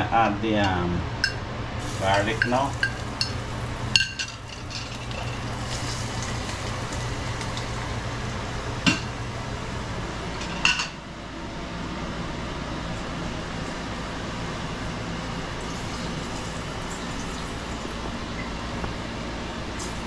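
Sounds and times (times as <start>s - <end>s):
steady hiss: 1.8s - 10.4s
steel cookware clinking: 2.1s - 5.8s.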